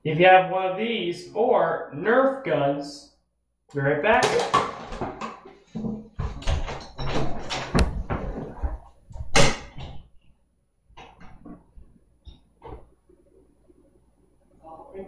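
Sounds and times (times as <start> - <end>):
knocks bumps and rattles: 4.2 - 10.1.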